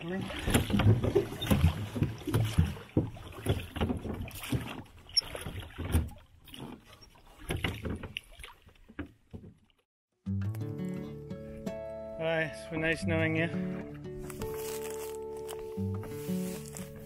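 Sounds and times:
light water noise: 0:00.0 - 0:09.9
oars knocking on metal rowboat: 0:00.4 - 0:09.7.

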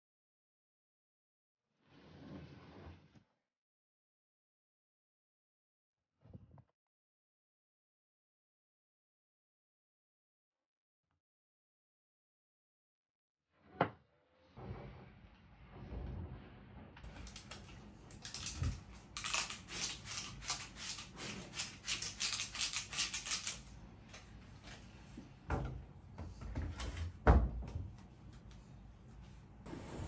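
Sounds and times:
spray bottle spritzing: 0:19.2 - 0:23.6.

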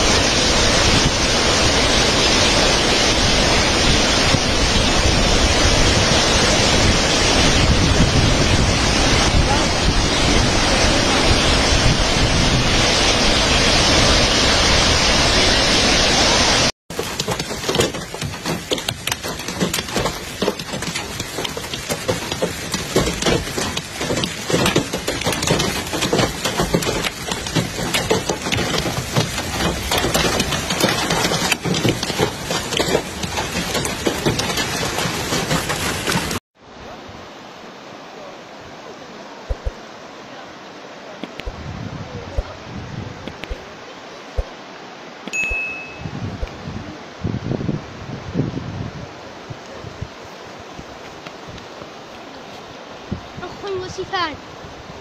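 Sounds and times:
floodwater rushing over weir: 0:00.0 - 0:55.0
rough uneven noise: 0:16.9 - 0:36.4.

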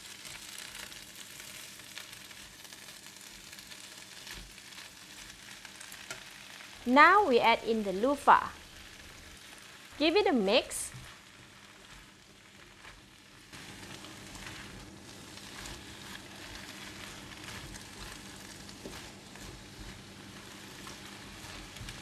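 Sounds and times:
vegetables sizzling in wok: 0:00.0 - 0:22.0
spatula scraping food against pan: 0:13.8 - 0:22.0.

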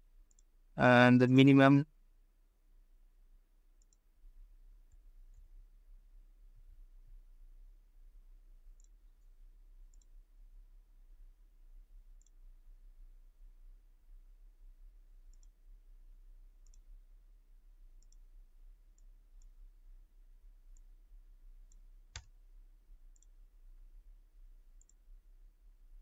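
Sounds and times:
low steady hum: 0:00.0 - 0:26.0
computer mouse clicks: 0:00.2 - 0:00.5, 0:03.8 - 0:04.1, 0:08.7 - 0:09.3, 0:09.9 - 0:10.2, 0:12.2 - 0:12.4, 0:15.3 - 0:15.6, 0:16.6 - 0:16.9, 0:18.0 - 0:18.3, 0:21.7 - 0:22.4, 0:23.1 - 0:23.4, 0:24.8 - 0:25.0.

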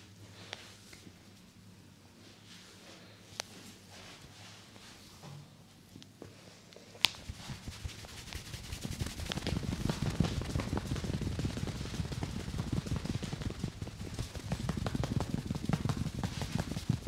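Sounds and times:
hands patting on scalp: 0:07.0 - 0:17.0.

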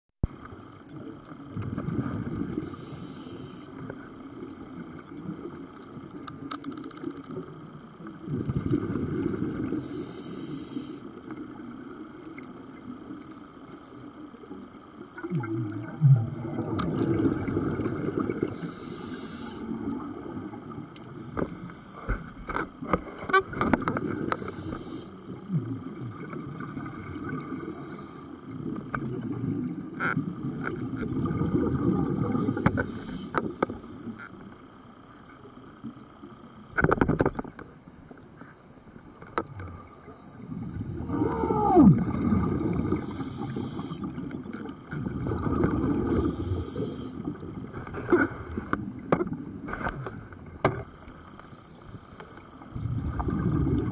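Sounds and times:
gurgling exhaled bubbles: 0:01.0 - 0:02.9, 0:07.3 - 0:09.9, 0:14.9 - 0:18.9, 0:19.5 - 0:33.7, 0:39.4 - 0:50.6, 0:52.6 - 0:53.9
regulator inhalation hiss: 0:02.6 - 0:05.1, 0:09.8 - 0:11.2, 0:13.0 - 0:14.4, 0:18.3 - 0:19.8, 0:21.0 - 0:22.5, 0:24.3 - 0:25.2, 0:27.4 - 0:28.4, 0:32.3 - 0:34.3, 0:42.9 - 0:44.2, 0:46.0 - 0:47.3, 0:50.8 - 0:52.4.

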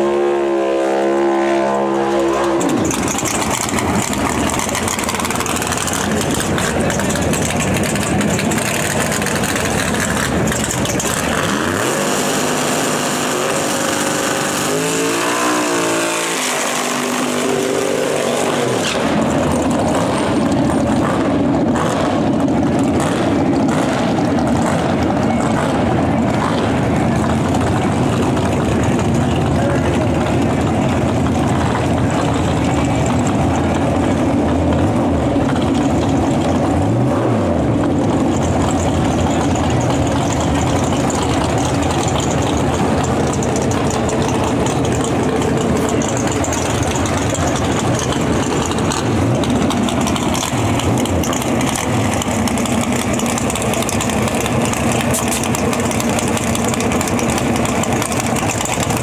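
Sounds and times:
car engine revving hard: 0:08.6 - 0:27.3.

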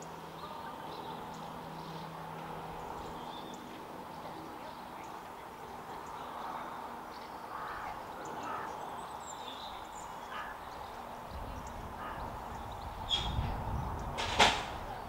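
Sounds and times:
faint birdsong: 0:00.0 - 0:15.0
train diesel engines running: 0:00.0 - 0:15.0
low rumble: 0:11.2 - 0:15.0.

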